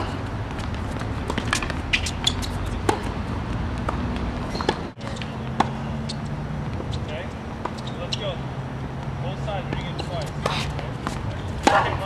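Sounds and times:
racket hitting tennis ball: 0.0 - 7.0, 9.7 - 12.0
tennis ball bouncing: 0.0 - 8.3, 8.9 - 12.0
shoe scuffs on court: 9.7 - 12.0.

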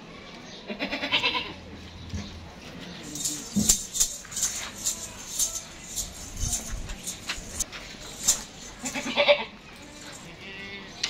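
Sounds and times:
goat bleating: 0.7 - 1.6, 8.8 - 9.6, 10.2 - 11.0
rhythmic high rattle: 3.0 - 10.3.

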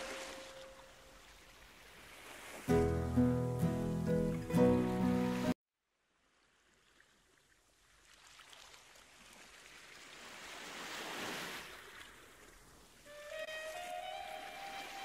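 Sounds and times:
small waves washing onto sand: 6.8 - 13.1.

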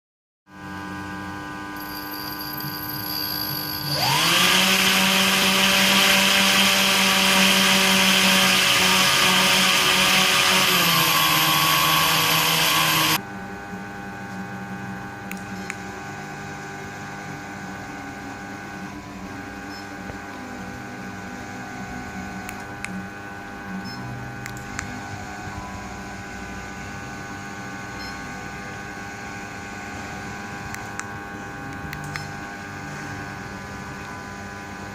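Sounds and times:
small motor whine: 0.5 - 34.9
gear motors humming: 1.8 - 13.2.

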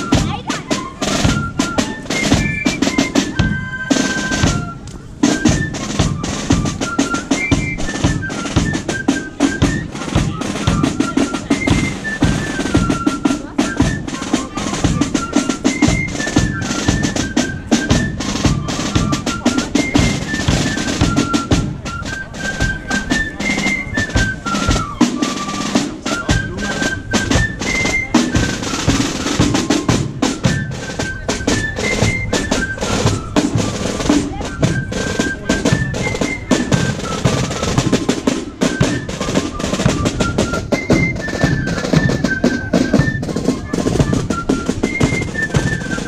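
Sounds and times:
snare drums: 0.0 - 46.0.

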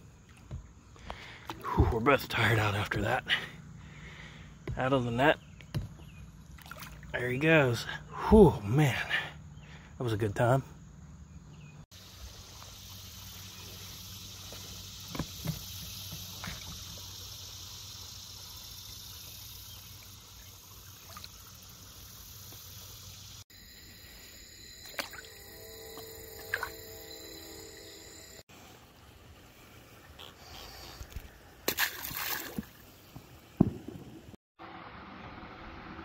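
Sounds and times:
quiet water sounds: 0.0 - 7.7, 12.0 - 36.0
steady multi-tone hum: 23.5 - 28.4.

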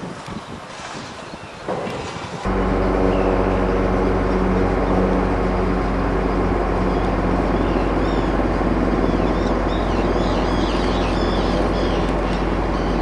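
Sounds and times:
birds calling: 1.2 - 13.0
steady engine drone: 1.8 - 13.0.

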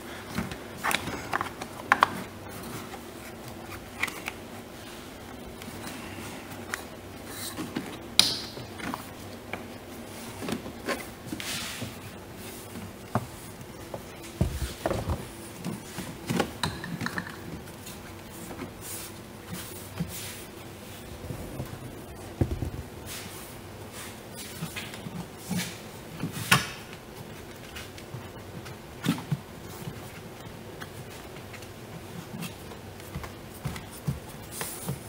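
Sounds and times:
dull bumps: 21.1 - 23.0.

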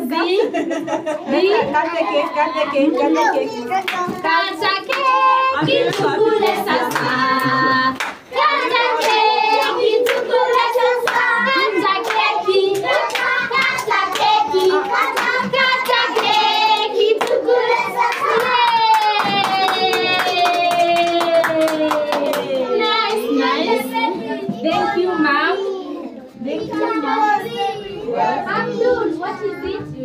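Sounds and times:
people clapping in a steady beat: 3.8 - 23.0
group of voices singing: 4.2 - 20.3.

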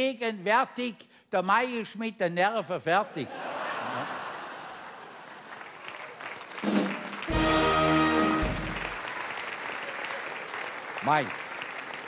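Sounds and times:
audience applauding: 3.7 - 12.0
brass band chord: 6.8 - 9.0.

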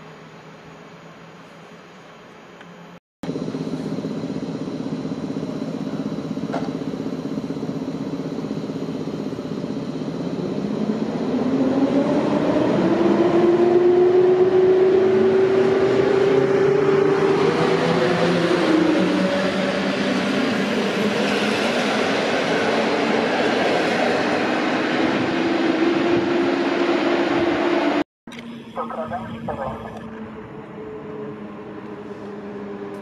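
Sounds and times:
electric locomotive motors whining: 0.0 - 33.0.

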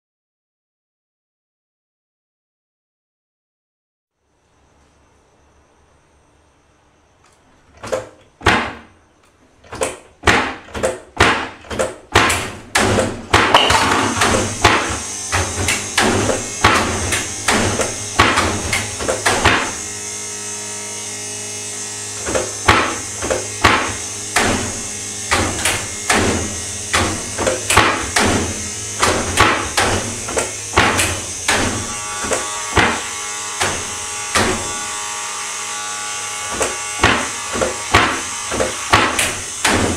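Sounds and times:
steady electric hum: 4.2 - 10.2, 12.0 - 39.9
loud knocks or bangs: 7.9 - 9.0, 9.8 - 19.8, 22.2 - 34.8, 36.5 - 39.9.

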